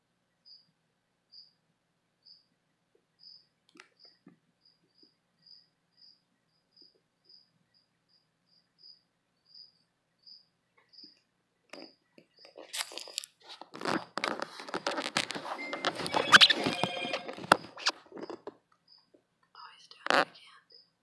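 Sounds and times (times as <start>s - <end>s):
cricket chirping: 0.4s - 1.6s, 2.2s - 2.5s, 3.2s - 11.2s, 15.6s - 19.1s, 19.7s - 21.0s.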